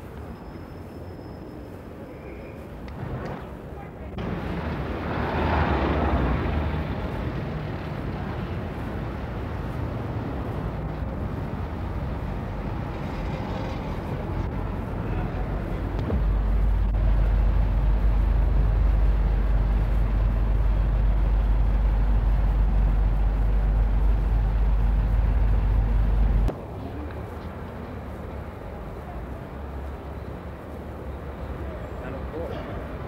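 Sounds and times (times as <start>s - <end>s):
traffic noise: 0.0s - 33.0s
low rumble: 2.9s - 26.5s.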